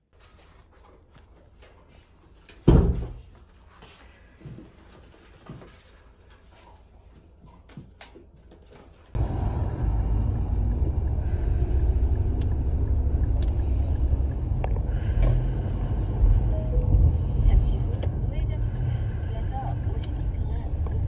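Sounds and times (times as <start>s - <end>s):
car road noise rumble: 9.1s - 21.0s.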